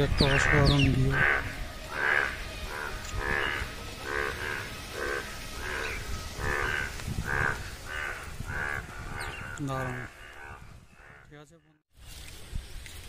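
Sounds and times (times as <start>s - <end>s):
frogs croaking: 0.0s - 11.8s.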